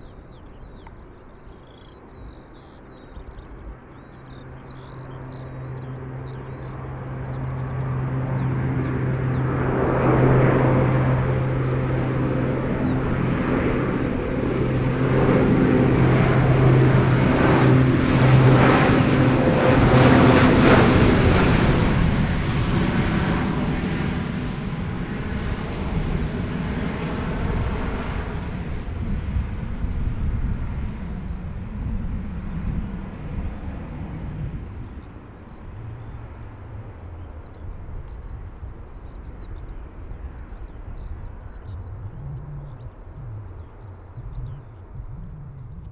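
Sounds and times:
low propeller drone overhead: 0:00.0 - 0:45.9.

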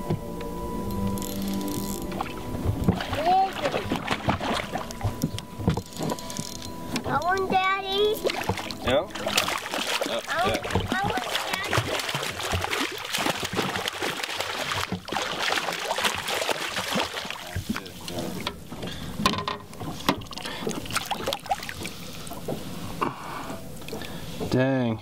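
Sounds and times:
water dripping: 0:01.0 - 0:19.0
fish thrashing and splashing: 0:01.3 - 0:06.8, 0:08.0 - 0:23.0.

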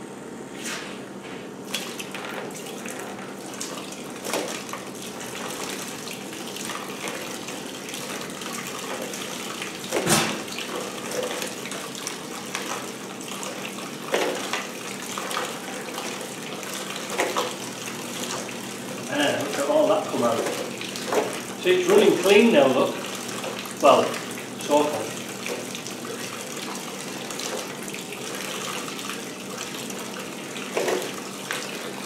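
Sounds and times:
petrol pouring into plastic tub: 0:01.7 - 0:32.0.

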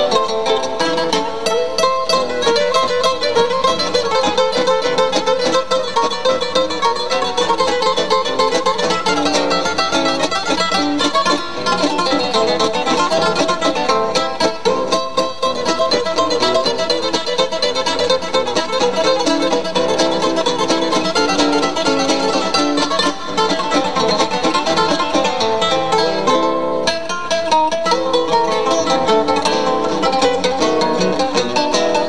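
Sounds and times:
acoustic guitars playing waltz: 0:00.0 - 0:32.0.

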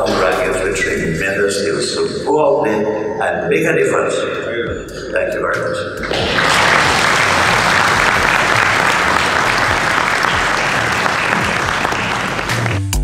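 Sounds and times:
large audience applauding: 0:06.0 - 0:13.0.

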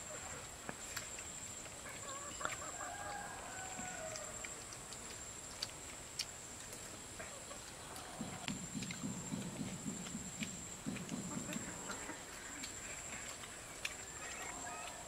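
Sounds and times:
rooster crowing: 0:02.6 - 0:04.4.

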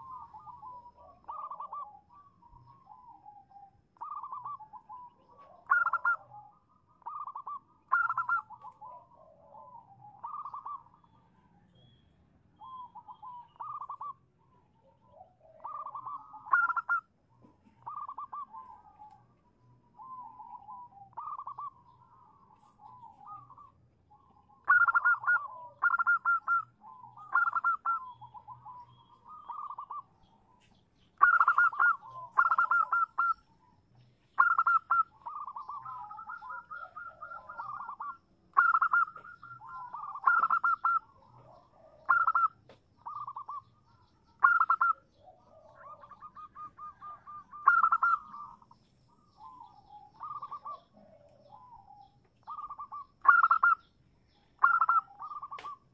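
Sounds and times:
dove rolling trills: 0:00.0 - 0:11.3, 0:12.6 - 0:55.9
dove staccato coos: 0:04.0 - 0:10.9, 0:15.5 - 0:19.2, 0:31.2 - 0:33.4, 0:34.4 - 0:43.8, 0:44.4 - 0:48.8, 0:49.4 - 0:53.8, 0:54.6 - 0:55.9.

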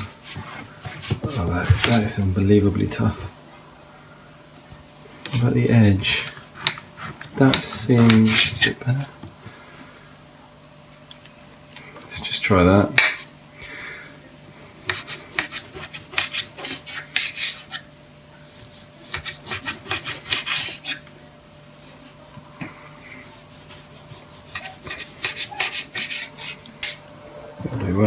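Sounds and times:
knife scraping wooden board: 0:06.2 - 0:08.8, 0:14.8 - 0:17.9, 0:18.6 - 0:21.1, 0:23.2 - 0:27.0
knife sawing through mushroom: 0:14.8 - 0:17.9, 0:18.7 - 0:21.0, 0:23.0 - 0:27.0.

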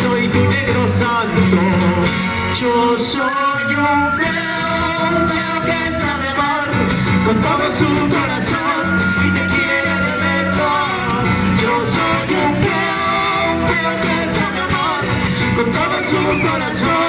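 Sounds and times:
small live band playing: 0:00.0 - 0:17.0.

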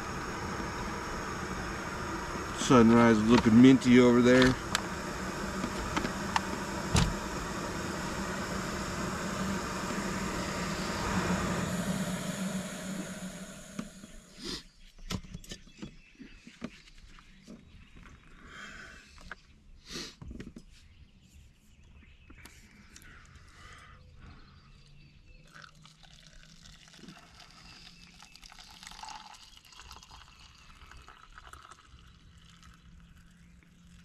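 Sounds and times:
gas stove burner roaring: 0:00.0 - 0:14.6.

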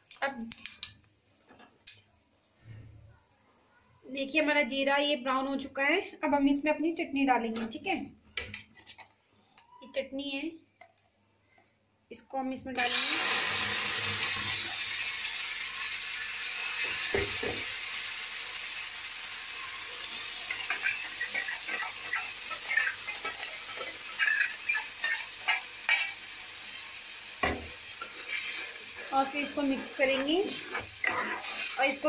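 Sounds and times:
paste sizzling in hot oil: 0:12.8 - 0:32.0.

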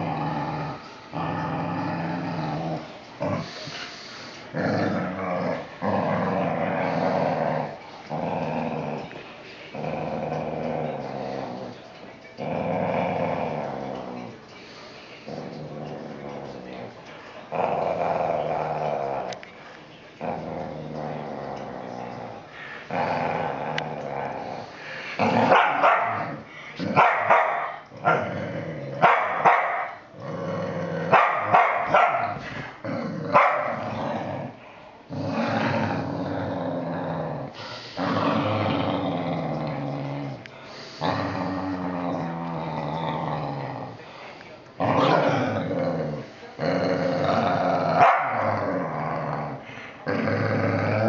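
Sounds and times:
dogs growling: 0:00.0 - 0:51.0
dog barking: 0:25.5 - 0:26.2, 0:27.0 - 0:27.8, 0:29.0 - 0:30.0, 0:31.1 - 0:32.3, 0:33.4 - 0:33.8, 0:48.0 - 0:48.4.

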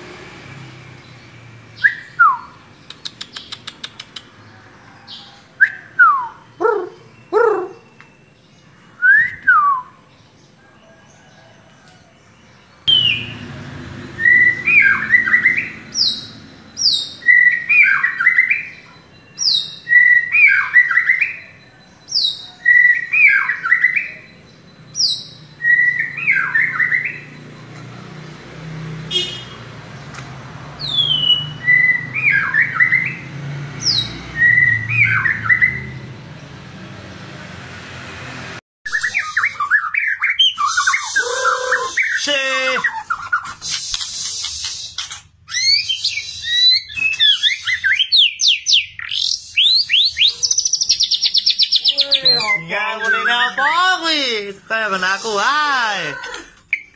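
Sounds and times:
bird singing whistled phrases: 0:01.8 - 0:03.6, 0:05.6 - 0:08.2, 0:09.0 - 0:10.0, 0:12.9 - 0:13.3, 0:14.2 - 0:21.5, 0:25.0 - 0:27.3, 0:30.8 - 0:33.2, 0:33.9 - 0:35.9, 0:38.9 - 0:53.6.

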